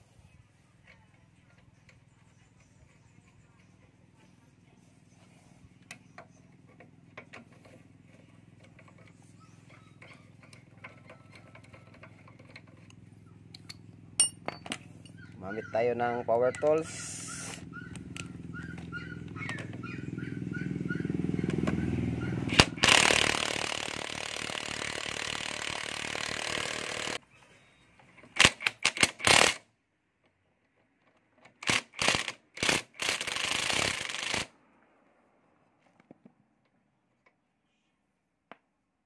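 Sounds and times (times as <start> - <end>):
impact wrench spinning and hammering: 13.6 - 15.2, 22.4 - 27.2, 28.3 - 29.6, 31.6 - 34.5.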